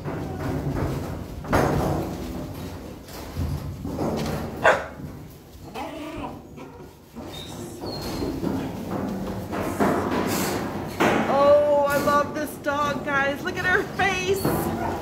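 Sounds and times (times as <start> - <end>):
puppies barking: 4.6 - 5.0.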